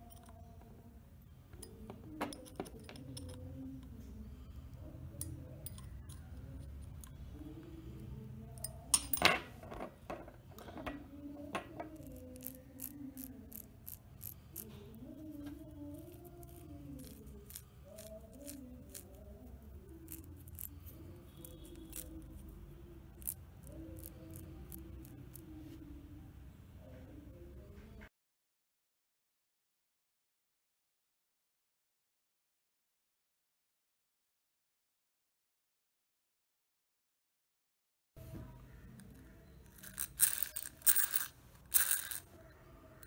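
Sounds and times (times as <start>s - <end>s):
metal parts clinking: 1.6s - 3.5s, 8.6s - 14.7s, 39.7s - 42.3s.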